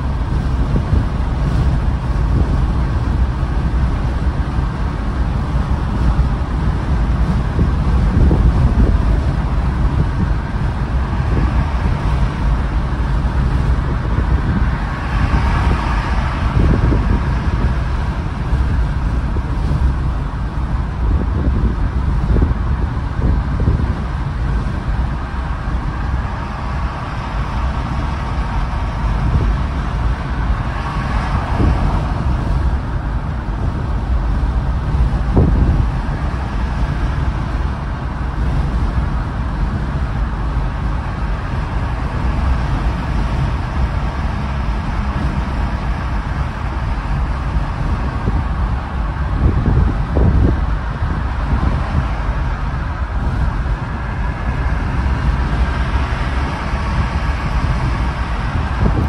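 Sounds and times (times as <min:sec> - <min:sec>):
tyres rumbling on road: 0:00.0 - 0:59.0
wind noise: 0:00.0 - 0:59.0.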